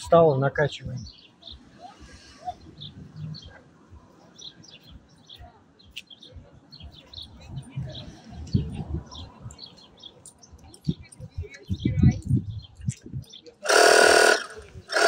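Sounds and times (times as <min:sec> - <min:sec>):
faint street background: 0:00.0 - 0:15.0
small birds chirping: 0:00.1 - 0:15.0.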